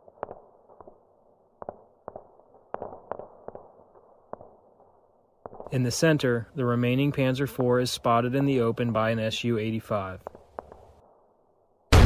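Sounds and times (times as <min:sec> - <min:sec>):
distant muffled gunfire: 0:01.6 - 0:03.7, 0:10.2 - 0:11.0
dull low hiss: 0:05.7 - 0:11.0.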